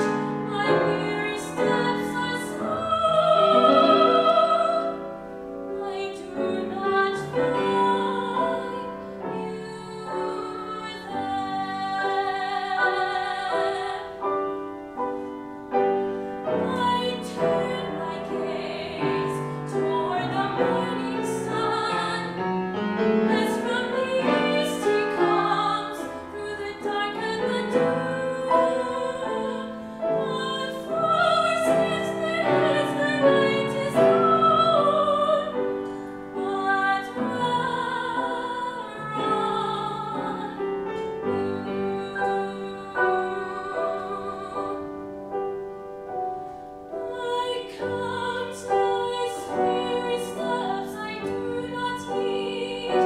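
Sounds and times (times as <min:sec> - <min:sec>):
woman singing operatic art song: 0:00.0 - 0:45.7, 0:46.9 - 0:53.0
grand piano accompaniment: 0:00.0 - 0:53.0.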